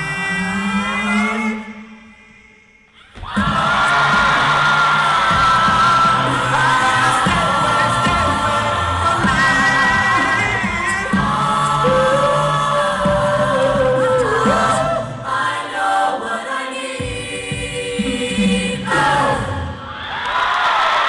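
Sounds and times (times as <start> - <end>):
a cappella group singing: 0.0 - 20.4
audience cheering and clapping: 3.2 - 9.5, 19.9 - 21.0.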